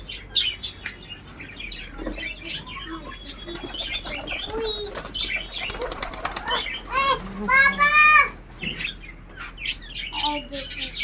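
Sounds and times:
cage birds chirping: 0.0s - 11.0s
pigeons flapping wings: 3.5s - 7.7s.

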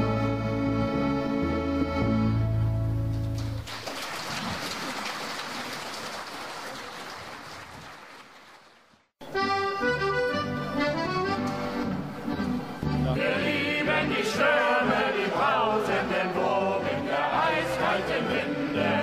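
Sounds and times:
accordion music: 0.0s - 3.3s, 9.2s - 19.0s
audience applause: 3.6s - 9.1s.

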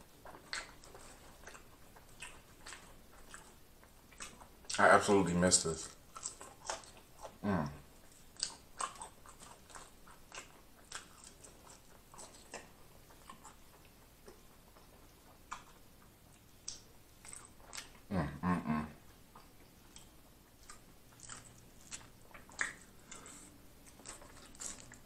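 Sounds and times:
person chewing crunchy food: 0.0s - 25.0s
wet mouth clicks: 16.4s - 18.1s, 19.4s - 25.0s.

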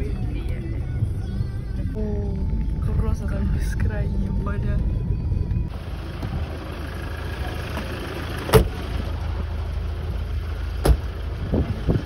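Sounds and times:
car engine rumble: 0.0s - 12.0s
car doors slamming: 7.7s - 8.9s, 10.8s - 11.2s.

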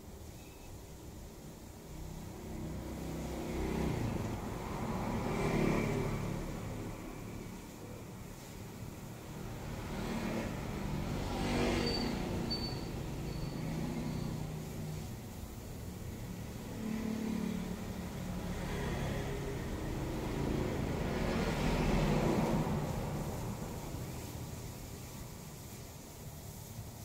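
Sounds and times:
road traffic rumble: 0.0s - 27.0s
vehicles passing by: 0.9s - 27.0s.

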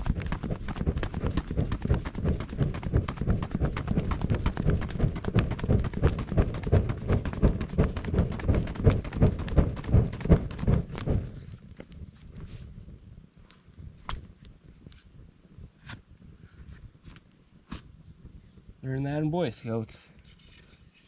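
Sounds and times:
fanning air buffeting microphone: 0.0s - 21.0s.

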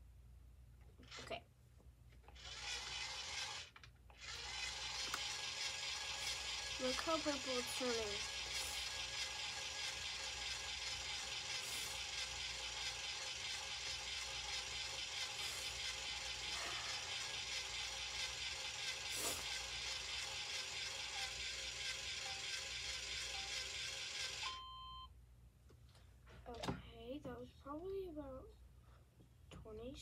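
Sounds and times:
kitchen appliance running: 2.3s - 24.6s.

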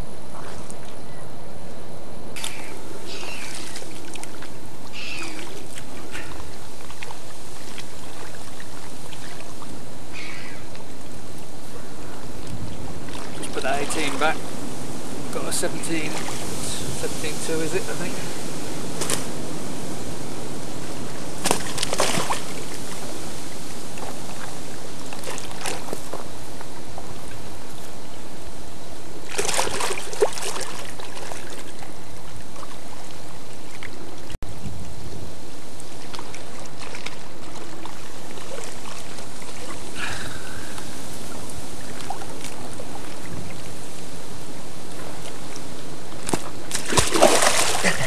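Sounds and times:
steady rushing noise: 1.3s - 30.7s
water sloshing and splashing: 2.3s - 28.3s, 29.2s - 34.4s, 35.8s - 48.0s.

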